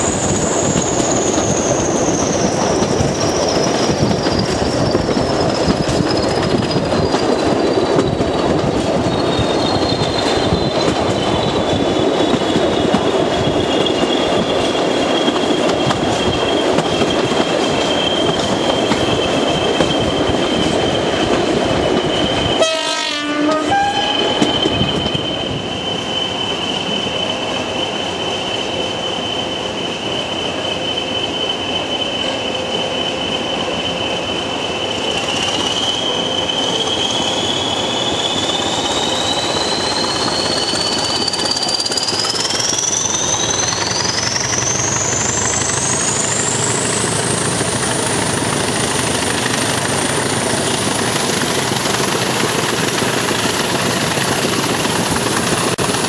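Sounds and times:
diesel locomotives working hard: 0.0 - 56.0
high whistle falling in pitch: 22.0 - 47.0.

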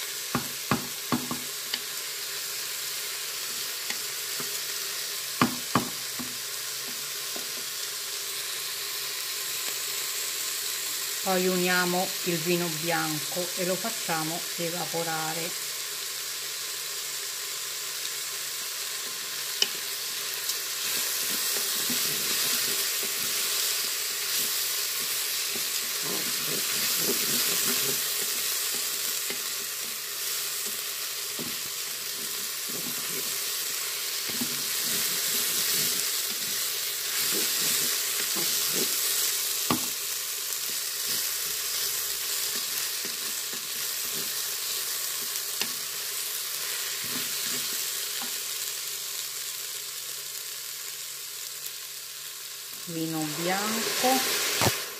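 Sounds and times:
rice sizzling in hot oil: 0.0 - 54.9
wooden spoon scraping pot: 20.8 - 29.5, 31.4 - 33.6, 34.2 - 39.2.

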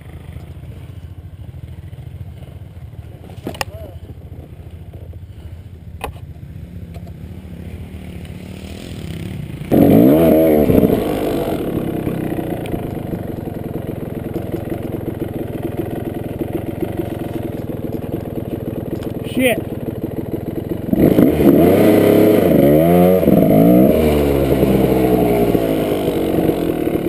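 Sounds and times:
dirt bike engine revving: 6.6 - 27.0.

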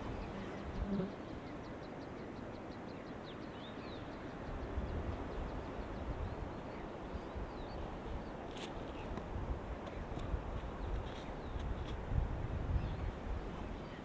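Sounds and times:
wind rumbling on microphone: 3.8 - 14.0.

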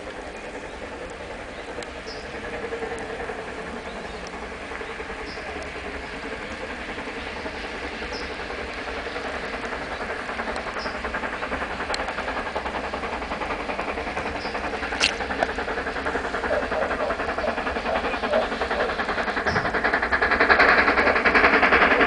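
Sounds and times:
steam locomotive chuffing: 0.0 - 22.0
sharp click: 15.0 - 15.2.

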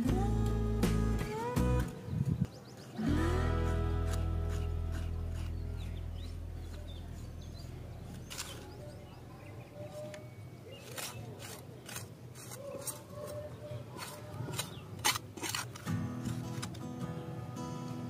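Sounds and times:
background music: 0.0 - 2.0, 3.0 - 5.6
trowel scraping dry soil: 2.8 - 9.1, 9.8 - 17.0.

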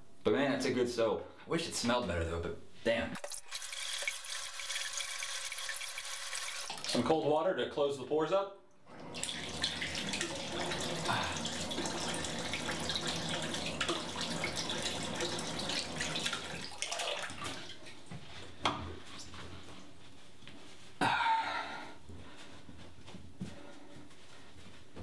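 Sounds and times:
sink tap running: 3.2 - 7.0, 8.9 - 17.7.

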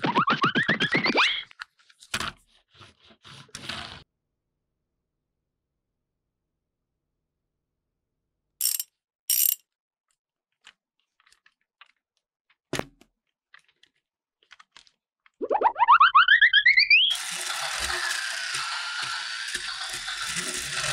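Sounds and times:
rising boing sound effect: 15.4 - 17.1
toy train wheels rattling: 17.1 - 20.9.

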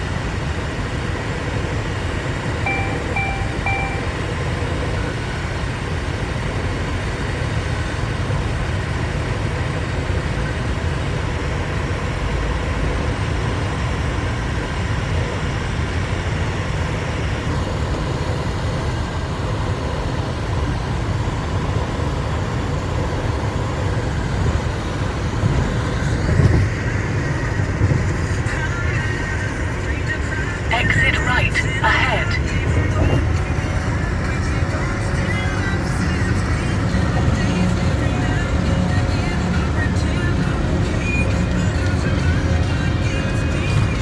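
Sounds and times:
car road and tyre noise: 0.0 - 44.0
short electronic beep: 2.6 - 4.3.

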